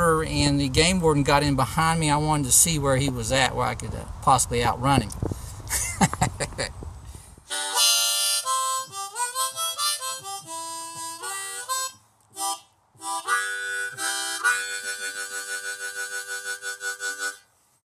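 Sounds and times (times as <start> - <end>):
harmonica playing: 7.5 - 17.6.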